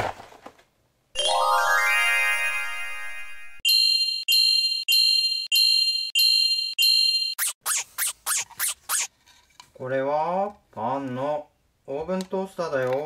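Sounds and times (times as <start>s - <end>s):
rising twinkly chime glissando: 1.2s - 3.6s.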